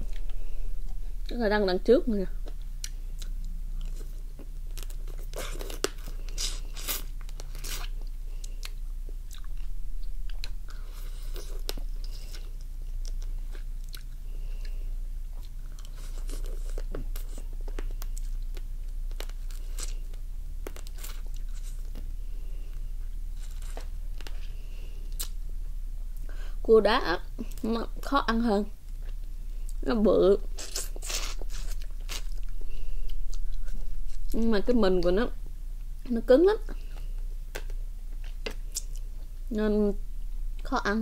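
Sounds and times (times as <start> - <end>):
chewing: 2.4 - 22.0.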